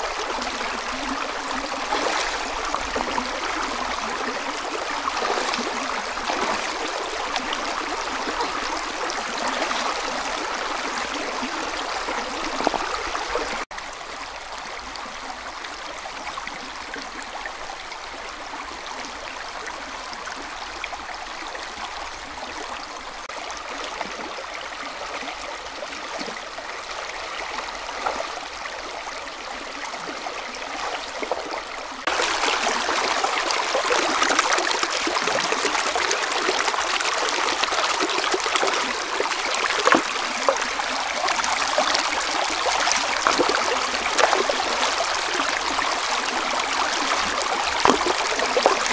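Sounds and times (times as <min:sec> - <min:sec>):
river babbling over stones: 0:00.0 - 0:48.9.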